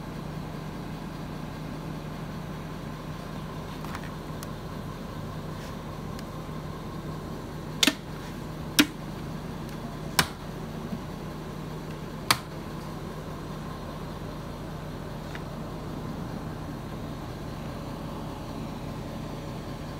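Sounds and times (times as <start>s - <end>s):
steady low hum: 0.0s - 19.9s
plastic latches snapping: 7.8s - 8.1s, 8.8s - 9.0s, 10.2s - 10.4s.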